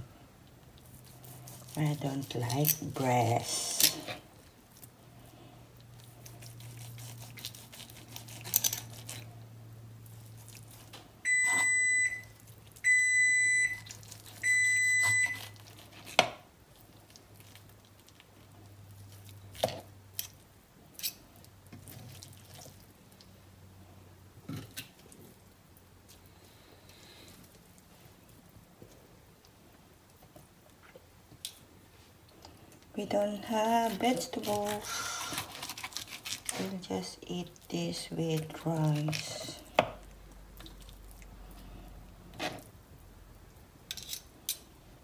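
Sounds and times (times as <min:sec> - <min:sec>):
low steady hum: 0:00.0 - 0:45.0
knife and fork on cutting board: 0:06.4 - 0:09.2, 0:43.9 - 0:44.6.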